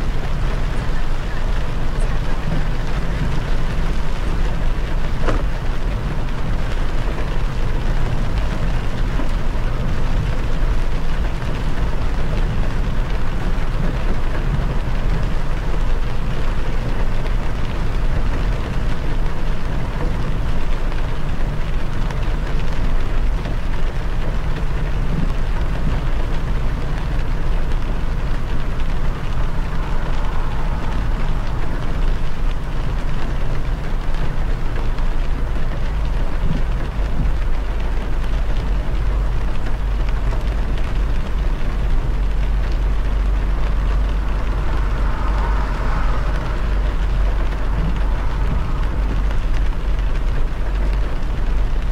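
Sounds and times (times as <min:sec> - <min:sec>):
rain: 0:00.0 - 0:51.9
tyre noise on wet road: 0:00.0 - 0:51.9.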